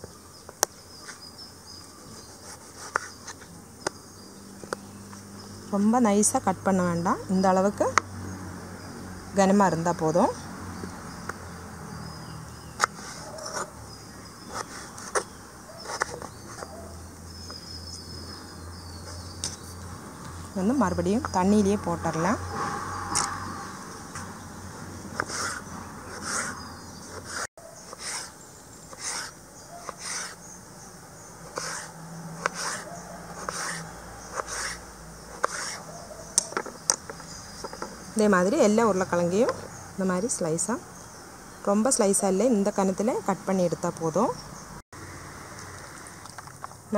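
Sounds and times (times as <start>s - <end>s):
knife chopping on wooden board: 34.4s - 37.1s.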